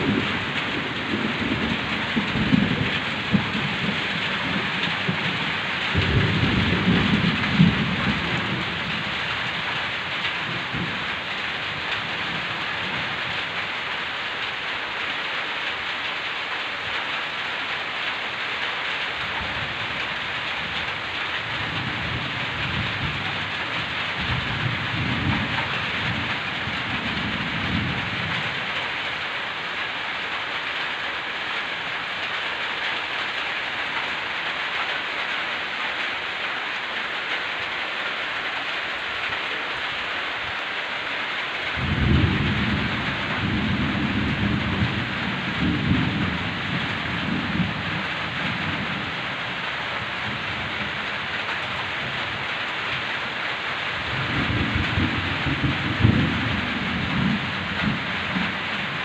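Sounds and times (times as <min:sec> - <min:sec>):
thunder rumbling: 0:00.0 - 0:13.6, 0:19.3 - 0:29.3, 0:41.6 - 0:53.1, 0:54.0 - 0:59.0
heavy rain falling: 0:00.0 - 0:59.0.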